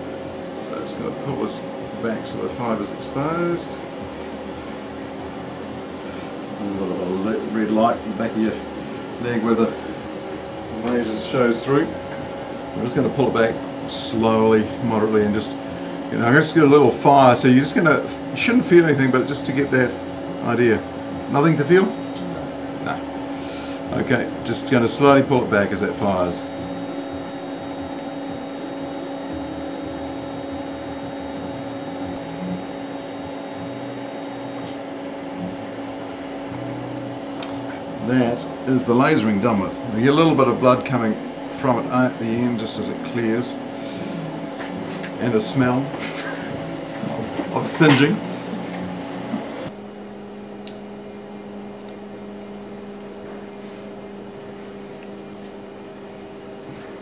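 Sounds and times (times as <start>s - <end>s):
low machine hum: 0.0s - 57.0s
steady high beep: 18.6s - 22.5s, 25.7s - 34.8s.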